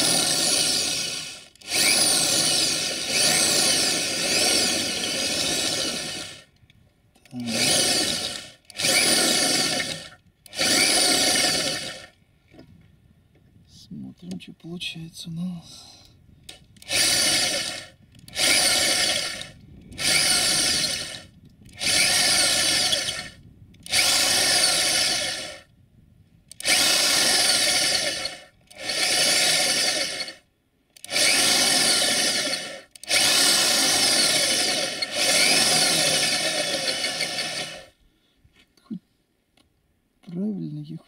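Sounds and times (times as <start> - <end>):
electric drill boring into sheet metal: 0.0 - 6.5, 7.4 - 12.1, 16.8 - 25.7, 26.6 - 30.4, 31.0 - 37.9.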